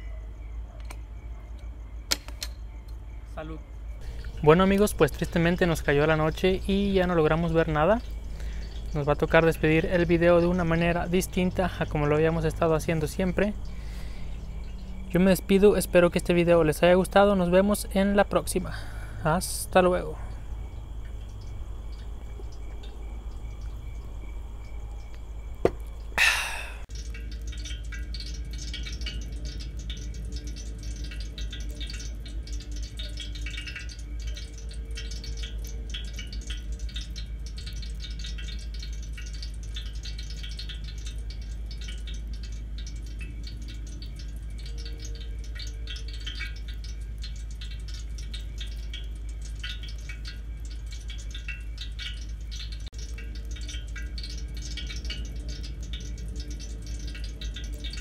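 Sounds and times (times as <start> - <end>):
fire embers crackling: 0.4 - 58.0
steady low rumble: 4.0 - 27.6.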